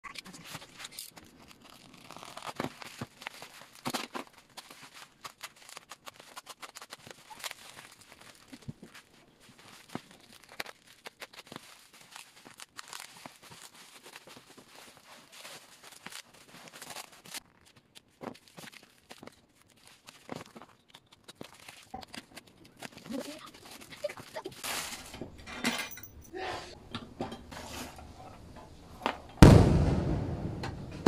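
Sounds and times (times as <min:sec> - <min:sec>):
bubble wrap crinkling and rustling: 0:00.1 - 0:25.1
plastic ripping: 0:00.2 - 0:24.8.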